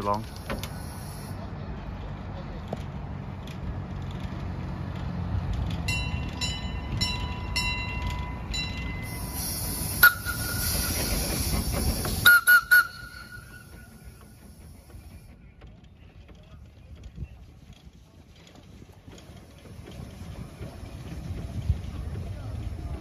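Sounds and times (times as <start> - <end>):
steam tram rumbling on rails: 0.0 - 23.0
hiss of steam: 0.6 - 1.4, 9.0 - 15.2
tram bell ringing: 5.8 - 11.1, 12.2 - 14.2.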